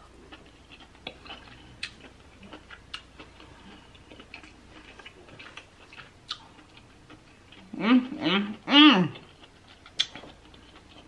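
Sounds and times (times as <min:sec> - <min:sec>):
wet chewing mouth clicks: 0:09.2 - 0:11.0.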